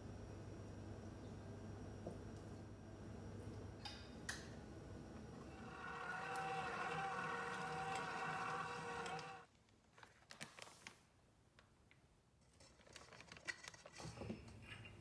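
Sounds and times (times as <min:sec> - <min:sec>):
stand mixer motor whining: 0:05.4 - 0:09.4.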